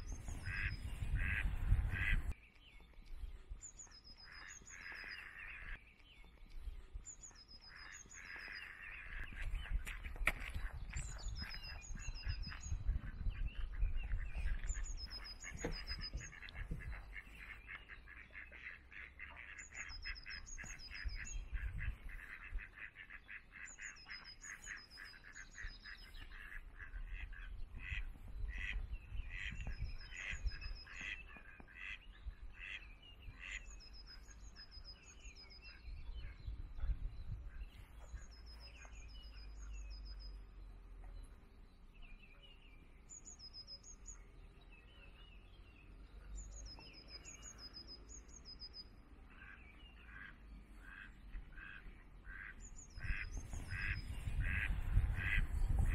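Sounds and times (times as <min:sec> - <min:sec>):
ducks quacking: 0:00.0 - 0:02.4, 0:03.8 - 0:05.8, 0:07.2 - 0:39.8, 0:49.3 - 0:55.9.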